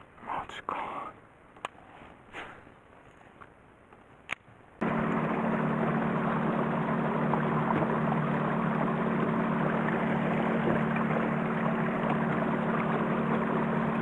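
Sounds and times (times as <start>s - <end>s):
boat motor humming: 4.8s - 14.0s
water rushing along hull: 4.8s - 14.0s.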